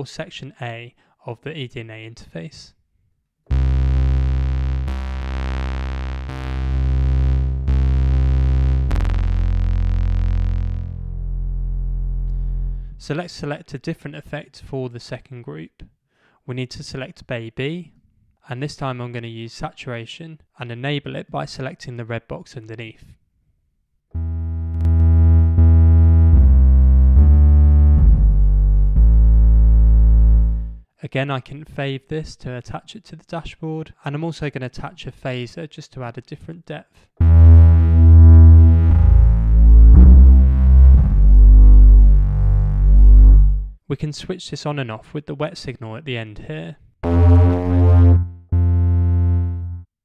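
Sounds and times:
distorted synth deep notes: 0:03.5 - 0:13.0, 0:24.2 - 0:30.8, 0:37.2 - 0:43.8, 0:47.0 - 0:49.9.

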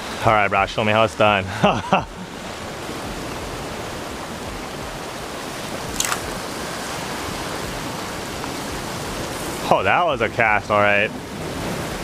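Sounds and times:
ocean surf on rocks: 0:00.0 - 0:12.0
fishing rod swish: 0:05.9 - 0:06.4.

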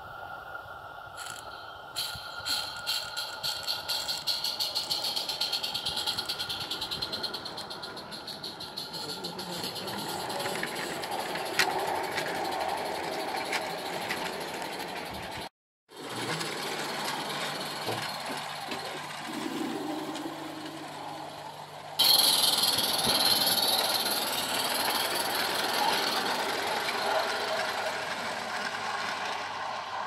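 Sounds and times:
bright steam hiss: 0:00.0 - 0:10.8
steam locomotive running on rails: 0:00.0 - 0:30.0.

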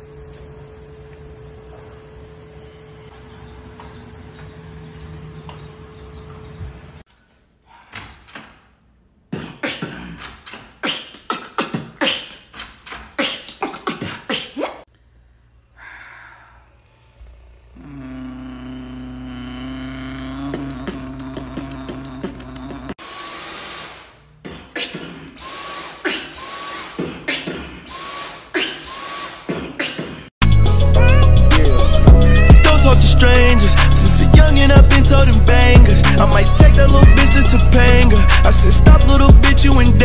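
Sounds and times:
beatboxing vocal percussion: 0:09.3 - 0:14.9, 0:17.8 - 0:23.0, 0:24.4 - 0:40.0
buzzing vocal drone: 0:15.4 - 0:23.0, 0:30.4 - 0:40.0.

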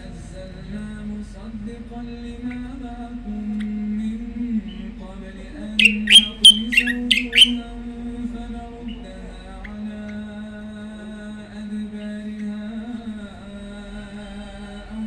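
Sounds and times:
chanted recitation or music: 0:00.0 - 0:15.0
songbird chirping: 0:02.2 - 0:07.8, 0:08.4 - 0:13.3.

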